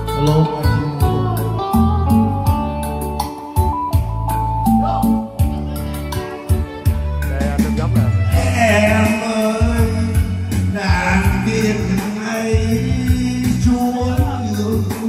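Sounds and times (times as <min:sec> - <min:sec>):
man singing into a microphone: 0:00.0 - 0:02.6, 0:07.2 - 0:15.0
backing track with bass line: 0:00.0 - 0:15.0.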